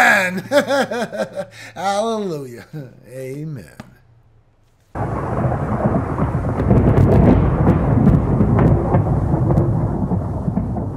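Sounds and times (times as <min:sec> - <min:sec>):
rain: 0:05.0 - 0:10.9
rumbling thunder: 0:05.0 - 0:10.9
sharp thunder crackles: 0:05.0 - 0:10.9.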